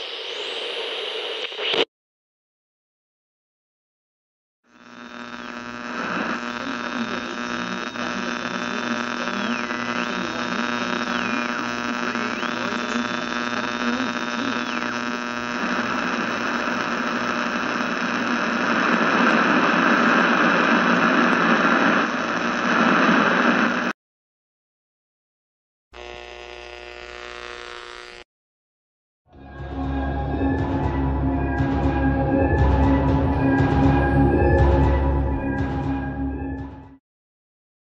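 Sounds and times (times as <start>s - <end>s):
radio hum with sliding whistles: 0.0s - 1.9s, 4.8s - 23.9s
radio static hiss: 0.0s - 1.9s, 4.7s - 24.0s, 26.0s - 28.2s.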